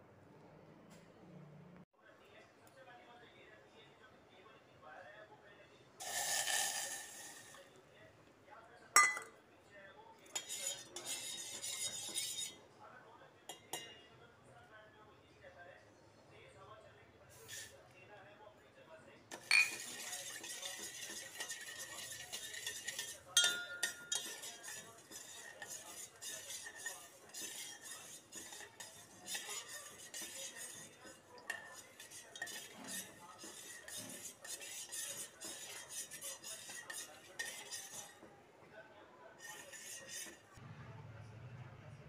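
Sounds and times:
metal spoon scraping a steel bowl: 6.0 - 7.7, 10.3 - 12.6, 17.4 - 17.8, 19.3 - 38.3, 39.4 - 40.6
ringing spoon clinks: 23.4 - 23.9.

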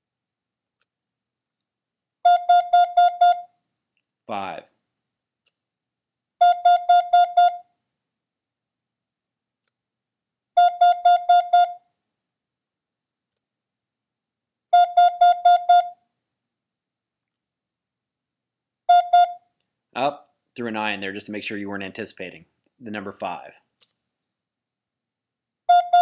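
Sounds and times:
morse code tone dits: 2.3 - 3.4, 6.4 - 7.6, 10.6 - 11.8, 14.8 - 15.9, 18.9 - 19.4, 25.7 - 26.0.

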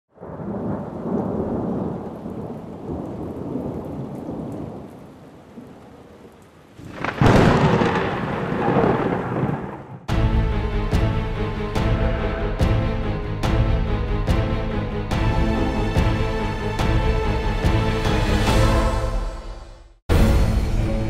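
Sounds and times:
rolling thunder: 0.1 - 5.8, 6.8 - 10.1
rain: 0.1 - 10.1
loud thunderclap: 0.2 - 4.9, 6.8 - 10.1.

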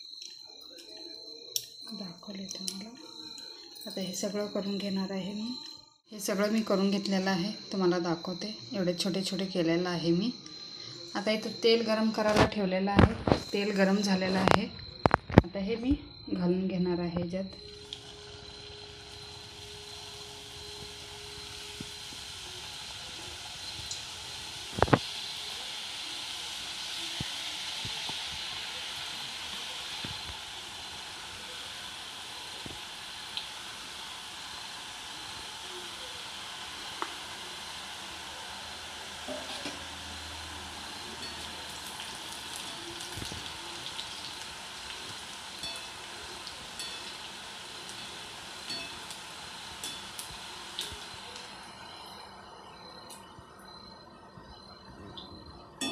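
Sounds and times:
dough sizzling in hot oil: 17.6 - 52.4.

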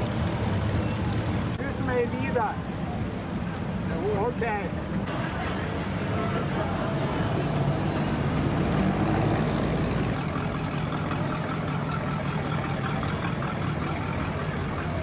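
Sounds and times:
car engine running low: 4.7 - 15.0.

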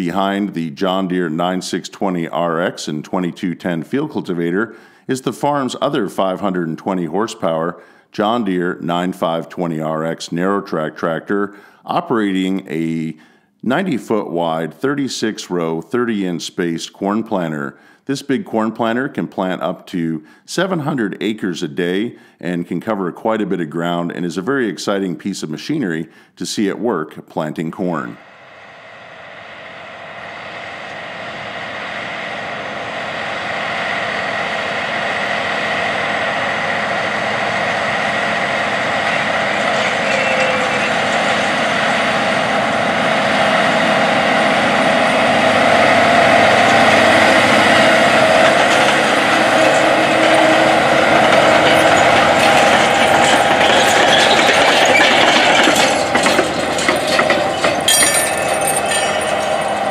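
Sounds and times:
tractor engine running: 28.2 - 59.9
planter rattling: 38.9 - 42.8, 45.0 - 59.9.

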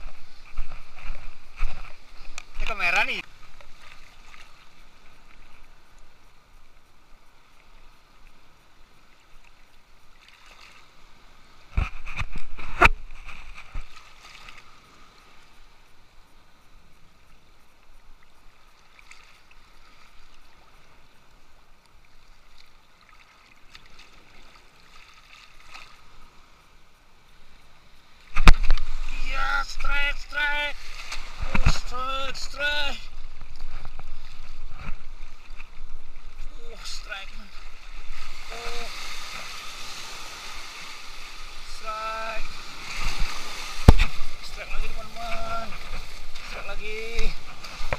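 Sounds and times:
small waves lapping: 0.0 - 47.9
knocks and splashing: 42.9 - 44.5.

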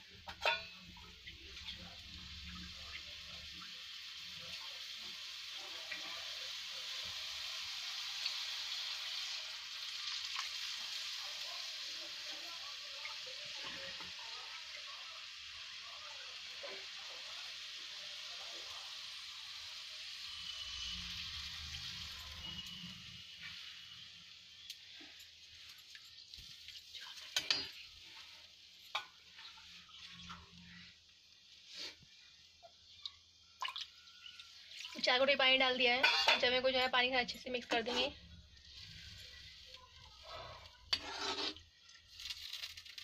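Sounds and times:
noodles sizzling in hot oil: 0.0 - 43.0
water being poured: 33.0 - 35.1.

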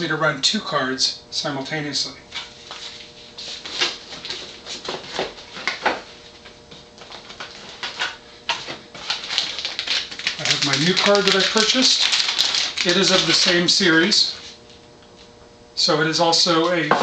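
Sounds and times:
packaging rustling: 2.4 - 14.1.

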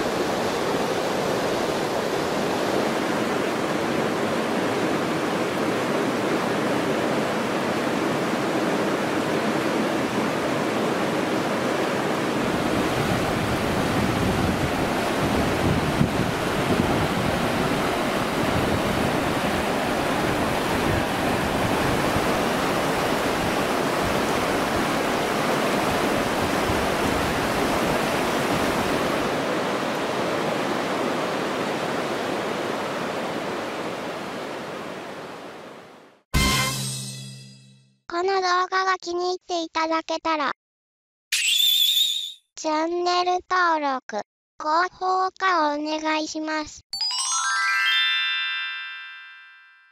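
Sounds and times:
river water rushing: 0.0 - 36.0
wind rumble on microphone: 12.4 - 25.1.

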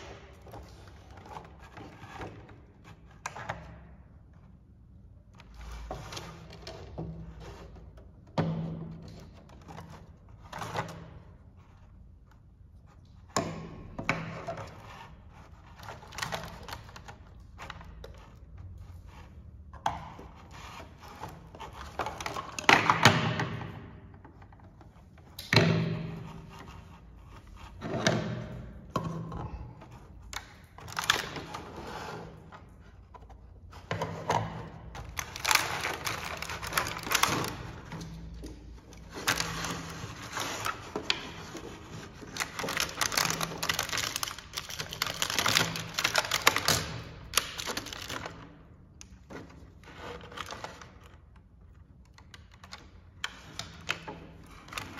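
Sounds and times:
plastic packaging crinkling: 35.0 - 38.2, 39.0 - 48.6.

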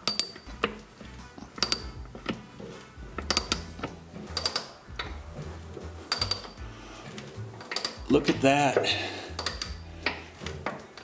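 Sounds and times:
lever jack metallic clicks: 1.6 - 2.4, 3.2 - 5.2, 7.6 - 8.0.

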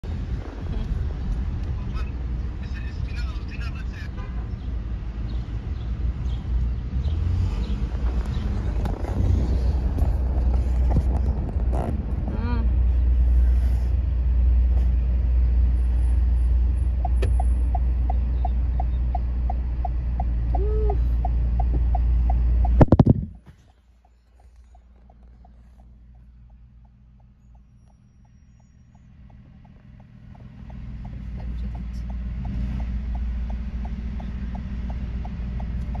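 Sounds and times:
car cabin rumble: 7.0 - 13.9, 14.6 - 36.0.

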